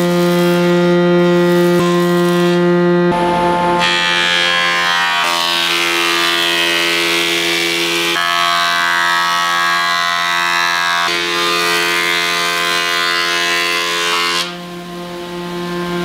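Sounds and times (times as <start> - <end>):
power tool whine: 1.4 - 8.8.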